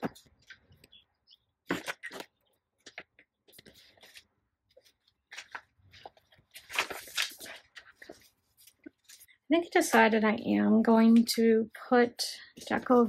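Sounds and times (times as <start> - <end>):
paper and fabric rustling: 1.6 - 10.2, 12.6 - 13.0.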